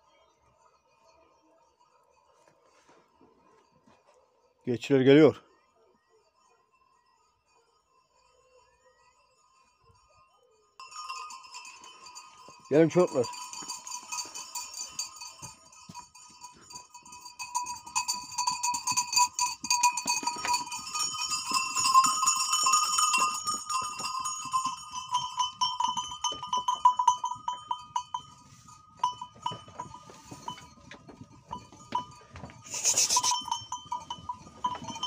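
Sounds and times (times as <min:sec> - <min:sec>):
goat and sheep bells clanking: 0:07.9 - 0:35.0.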